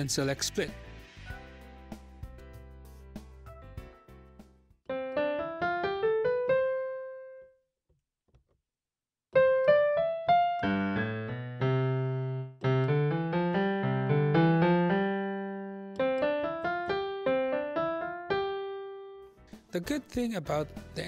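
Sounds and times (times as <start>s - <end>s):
piano bass notes and chords: 0.0s - 7.6s, 9.3s - 21.0s
piano notes rising run: 9.4s - 19.2s.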